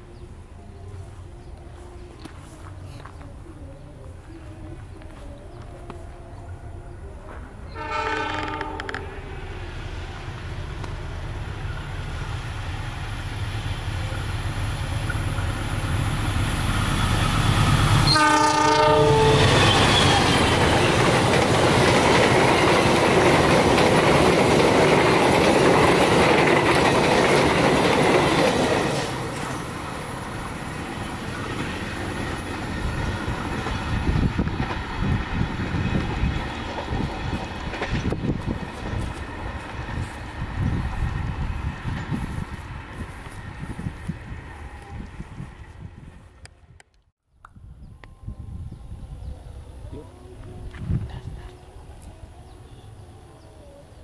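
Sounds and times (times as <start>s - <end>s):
train coaches rushing past: 5.2s - 46.4s
train horn blasts: 7.3s - 9.6s, 17.0s - 20.9s.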